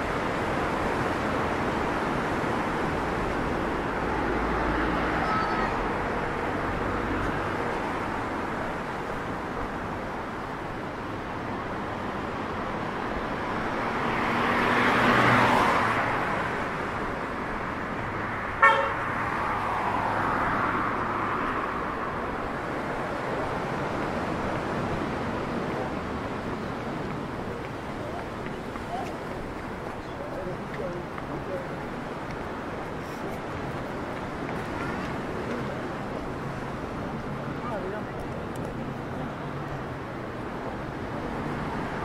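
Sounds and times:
road traffic: 0:00.0 - 0:42.0
vehicle passing: 0:13.3 - 0:42.0
car horn toot: 0:18.6 - 0:19.1.

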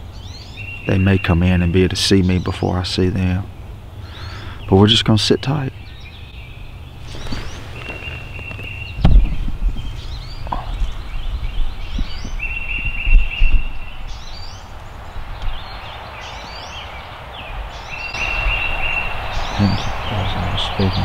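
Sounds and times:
bird trill: 0:00.0 - 0:21.0
songbirds singing: 0:00.0 - 0:21.0
camera handling bumps and rustling: 0:07.1 - 0:09.4.

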